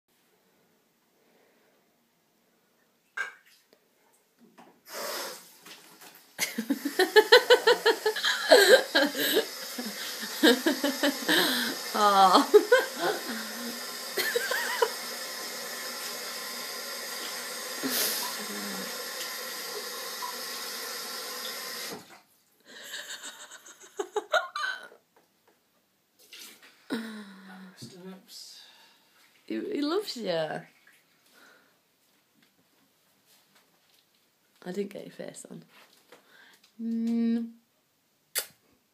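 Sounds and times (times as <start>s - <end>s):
person laughing: 6.4s - 15.0s, 22.8s - 25.0s
kitchen tap running: 6.4s - 22.1s.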